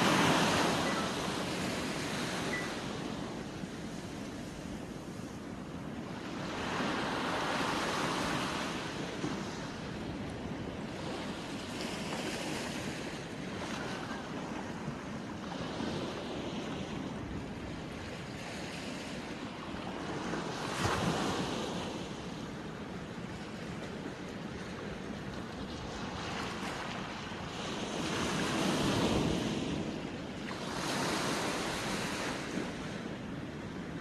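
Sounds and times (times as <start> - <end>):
sea waves washing onto shore: 0.0 - 17.6
wind on microphone: 0.0 - 34.0.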